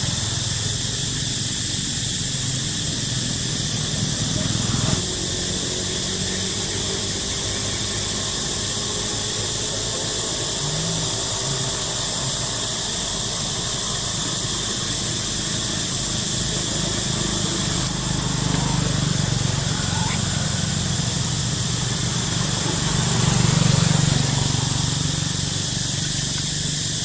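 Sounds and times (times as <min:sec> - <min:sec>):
steady high hiss: 0:00.0 - 0:27.0.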